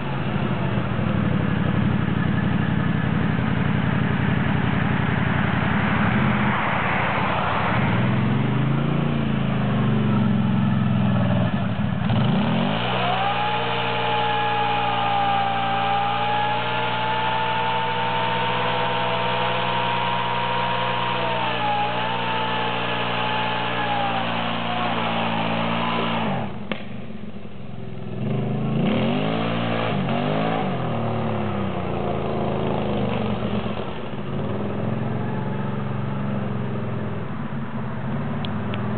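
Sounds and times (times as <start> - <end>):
atv engine revving: 0.0 - 38.9
tyres spinning: 12.1 - 26.7.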